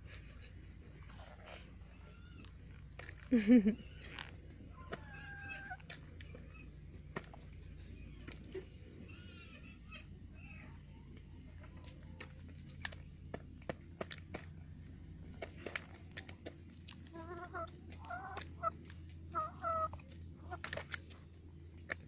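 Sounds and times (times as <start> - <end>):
hen clucking: 3.6 - 13.0, 15.7 - 21.1.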